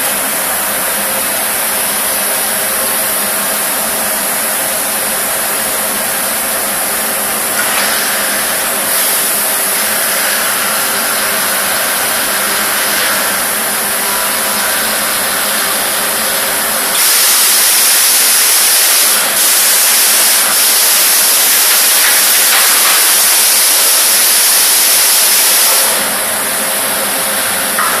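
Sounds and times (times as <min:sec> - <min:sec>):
machine hum: 0:00.0 - 0:25.1
loud hiss: 0:07.0 - 0:26.3.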